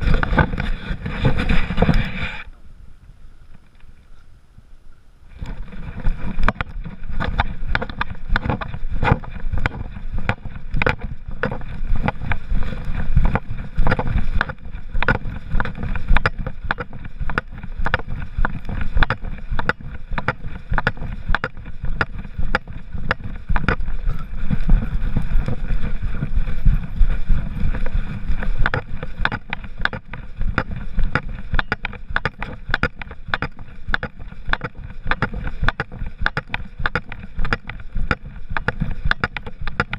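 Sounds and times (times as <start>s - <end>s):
low rumble of fur and wind: 0.0s - 39.9s
camera knocking in its mount: 28.6s - 39.9s
sharp clicks: 28.6s - 39.9s.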